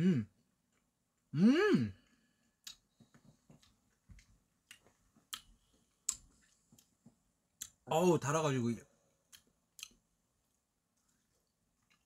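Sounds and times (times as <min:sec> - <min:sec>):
man making wordless vocal sounds: 0:00.0 - 0:00.3, 0:01.3 - 0:02.0.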